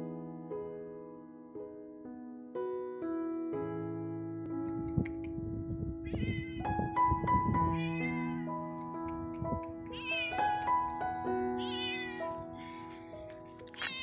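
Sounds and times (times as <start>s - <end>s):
held keyboard notes music: 3.6s - 13.8s
cat meowing: 6.0s - 8.7s, 9.8s - 10.7s, 11.5s - 14.0s.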